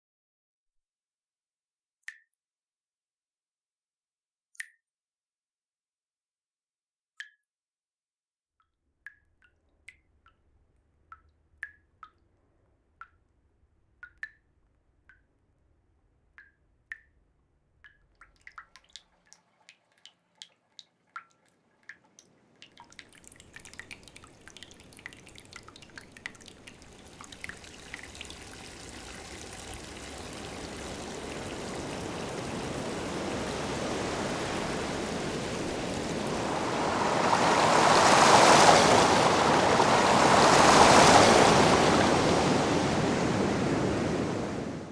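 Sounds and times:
water dripping: 2.0s - 2.4s, 8.6s - 44.9s
rushing water: 18.2s - 44.9s.

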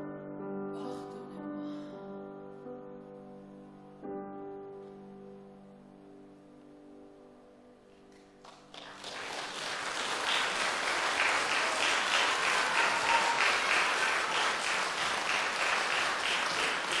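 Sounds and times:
audience applauding: 8.4s - 17.0s.

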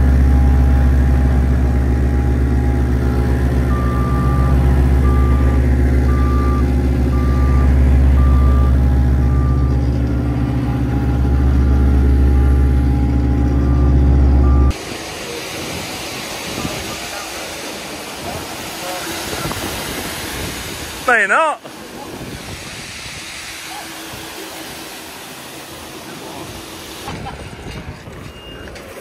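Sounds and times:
roller engine running: 0.0s - 29.0s
reversing alarm beeps: 2.1s - 9.9s, 10.8s - 14.8s, 28.2s - 28.9s.

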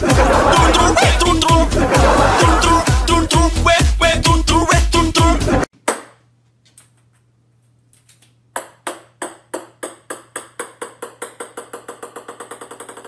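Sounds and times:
ping-pong ball bouncing on wood: 8.5s - 13.0s.

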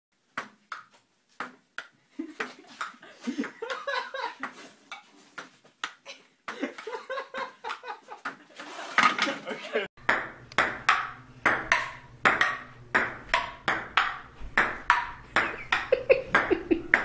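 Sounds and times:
ping pong ball bouncing: 0.4s - 2.0s, 10.0s - 17.0s.

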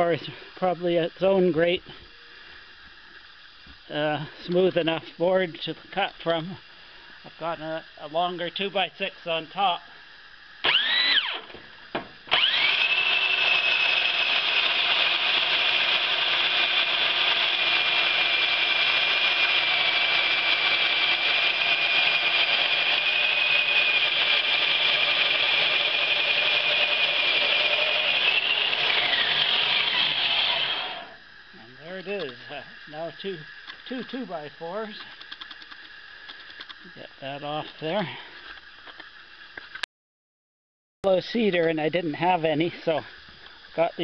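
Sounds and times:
bandsaw motor whining: 10.6s - 38.0s.

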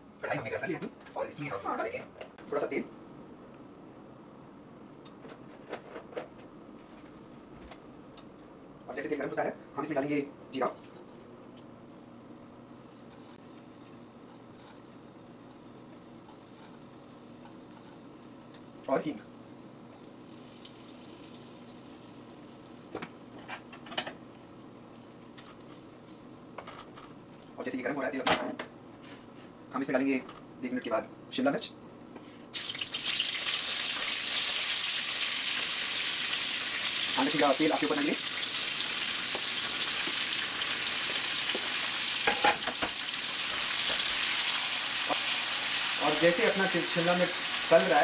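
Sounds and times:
seeds sizzling in hot oil: 20.1s - 23.4s, 32.5s - 48.0s.

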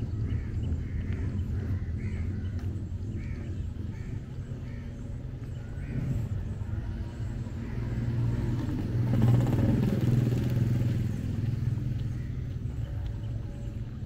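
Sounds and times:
vehicle engine passing: 5.6s - 14.0s.

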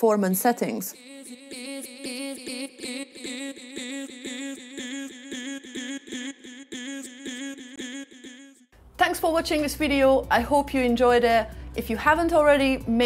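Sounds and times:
chopped sung vocal slices: 0.9s - 8.7s.

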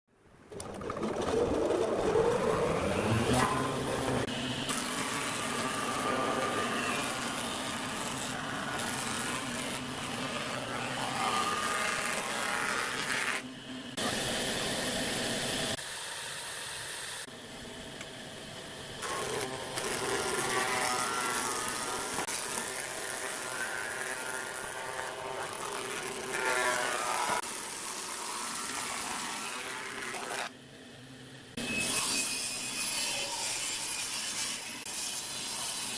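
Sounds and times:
planer cutting boards: 0.5s - 15.8s, 19.0s - 30.6s
wood planer motor whine: 0.5s - 15.8s, 17.2s - 30.6s.

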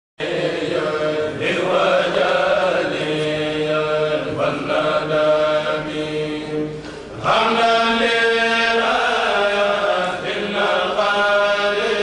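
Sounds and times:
men's choir chanting unaccompanied: 0.2s - 12.0s.

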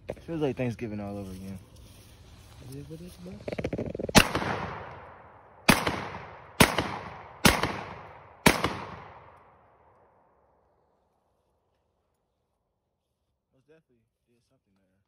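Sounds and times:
gunshots: 4.1s - 9.4s.

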